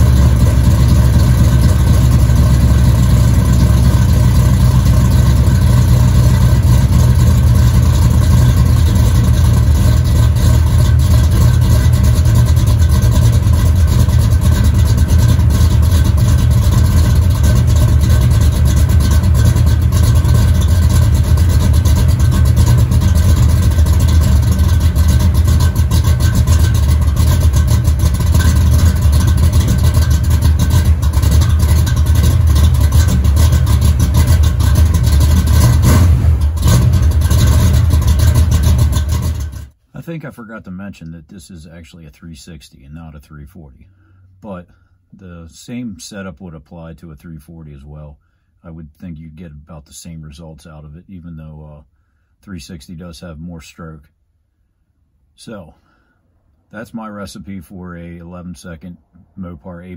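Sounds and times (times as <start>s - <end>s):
car engine idling: 0.0s - 40.2s.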